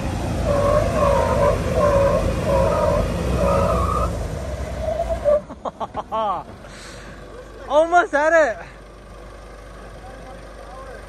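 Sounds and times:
engine running low under load: 0:00.0 - 0:11.0.

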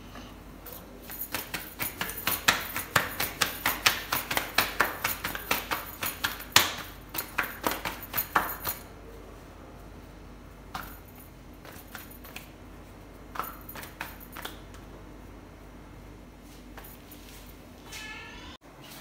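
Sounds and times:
metal bangles clinking: 0:00.7 - 0:08.9
dough slapping: 0:01.1 - 0:08.8.

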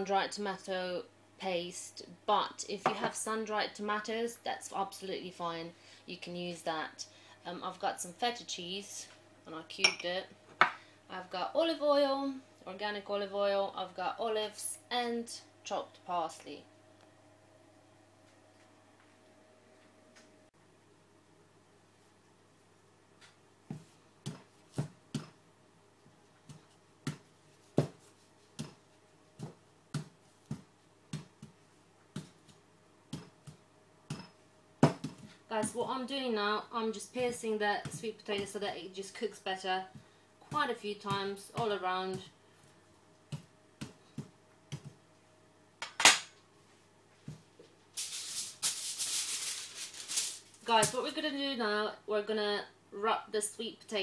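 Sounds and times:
aluminium foil crinkling: 0:48.0 - 0:51.0.

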